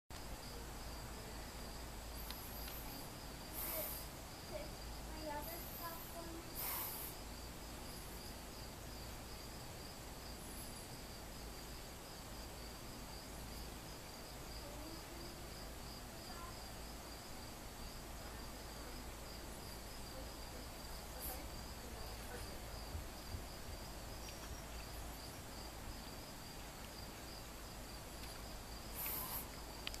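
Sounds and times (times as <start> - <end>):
insects chirping: 0.2 - 30.0
brief hissing noises: 3.5 - 4.2, 6.6 - 7.2, 28.9 - 29.6.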